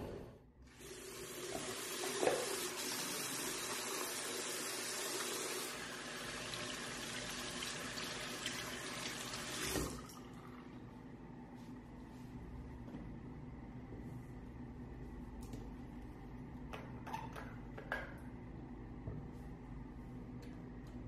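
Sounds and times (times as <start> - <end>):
tap water running into sink: 0.7 - 10.4.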